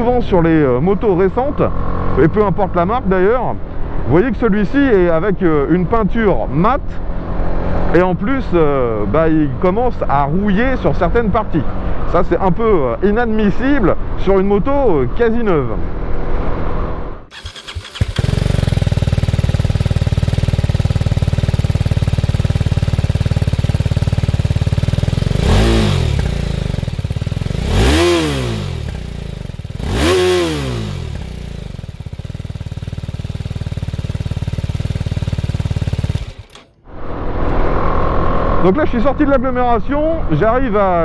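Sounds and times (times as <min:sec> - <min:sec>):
motorcycle engine revving: 0:01.4 - 0:02.9, 0:15.9 - 0:39.4.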